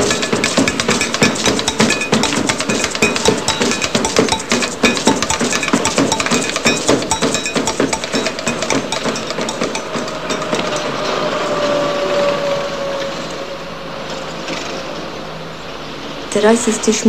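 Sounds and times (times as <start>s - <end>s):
fast drum strikes: 0.0s - 10.4s
ringing bell-like metallic tones: 0.0s - 11.9s.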